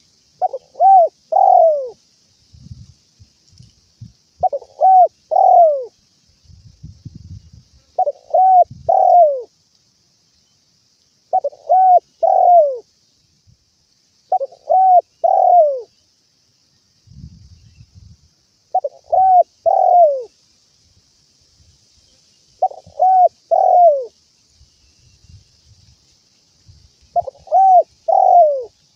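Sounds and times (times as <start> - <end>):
faint steady high hiss: 0.0 - 28.9
dove cooing: 0.4 - 2.0, 4.4 - 6.0, 8.0 - 9.5, 11.3 - 12.8, 14.3 - 15.9, 18.7 - 20.3, 22.6 - 24.1, 27.2 - 28.8.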